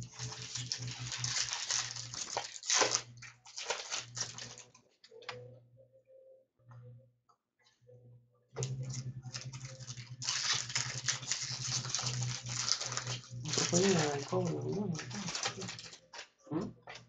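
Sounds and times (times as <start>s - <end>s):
foil wrappers crinkling: 0.0s - 4.8s, 8.6s - 16.4s.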